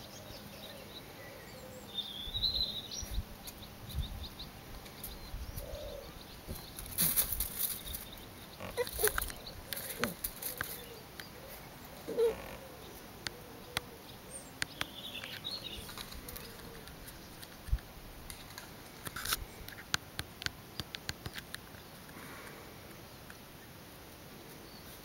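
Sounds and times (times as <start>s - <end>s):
puppy whining: 8.7s - 10.2s, 12.0s - 12.7s.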